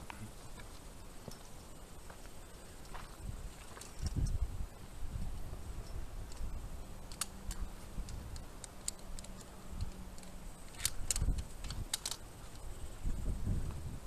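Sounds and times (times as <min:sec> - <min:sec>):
low rumbling handling noise: 0:02.9 - 0:14.0
carabiners clinking on steel cable: 0:05.8 - 0:12.8.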